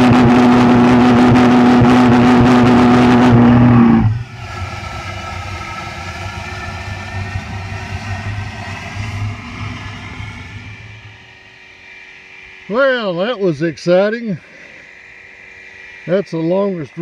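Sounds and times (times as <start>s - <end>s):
flame rushing at tailpipe: 0.0s - 11.7s
pulse jet engine buzzing drone: 0.0s - 17.0s.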